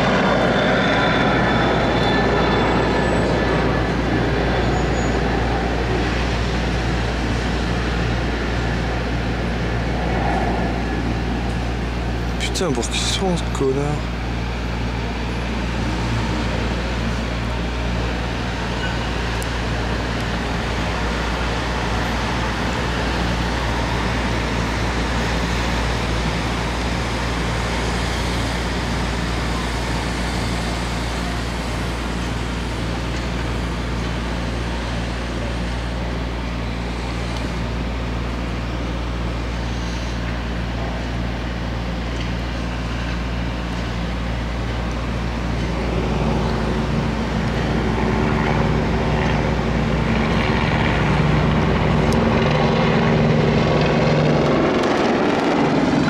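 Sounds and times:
helicopter drone: 0.0 - 56.0
street traffic hum: 0.0 - 56.0.

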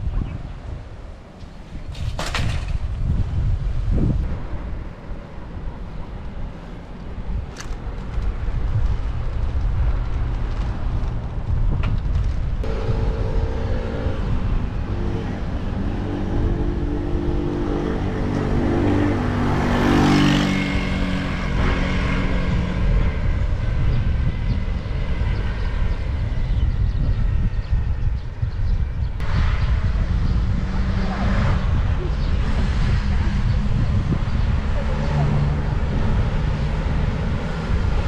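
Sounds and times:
street traffic rumble: 0.0 - 38.0
vehicle passing close: 12.6 - 26.2, 29.2 - 38.0.

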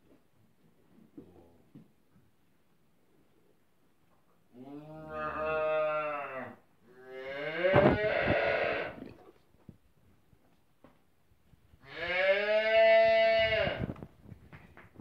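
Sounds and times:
calf mooing: 4.6 - 9.1, 11.8 - 13.9.

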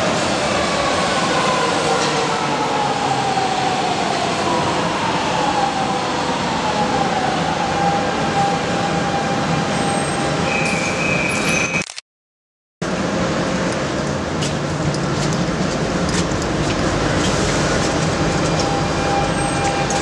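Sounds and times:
train wheels noise: 13.6 - 20.0.

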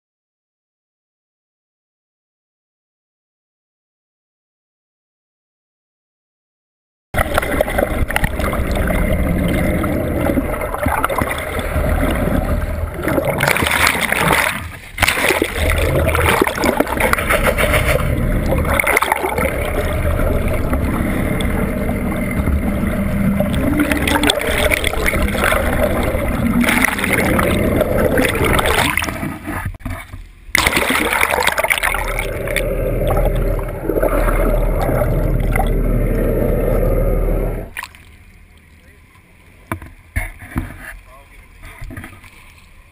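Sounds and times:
bubbles streaming: 7.2 - 29.8, 30.5 - 38.1
low rumble: 7.2 - 38.8
muffled underwater water rush: 7.2 - 42.9.

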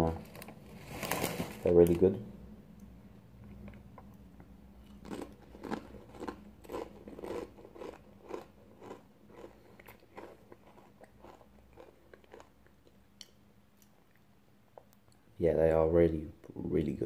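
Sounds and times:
person chewing crunchy chip: 4.9 - 13.0.

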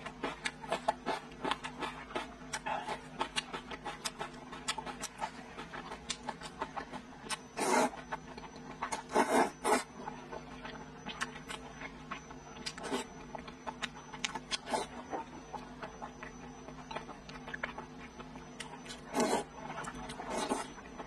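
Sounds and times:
wet chewing and mouth smacks: 0.0 - 21.0
slurping noodles: 7.6 - 7.9, 19.1 - 19.5.

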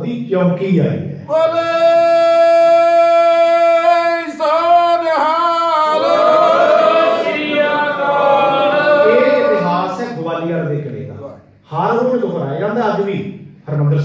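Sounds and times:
man singing unaccompanied: 1.3 - 6.0.

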